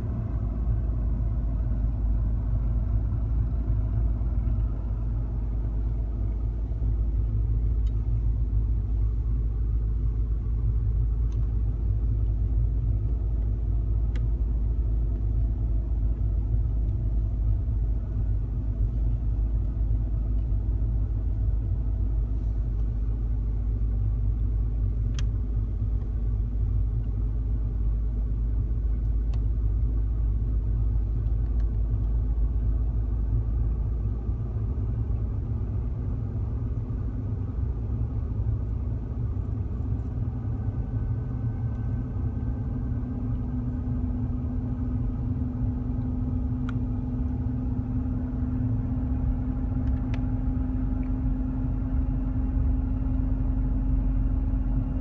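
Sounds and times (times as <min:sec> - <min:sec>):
car engine and tyre noise: 0:00.0 - 0:55.0.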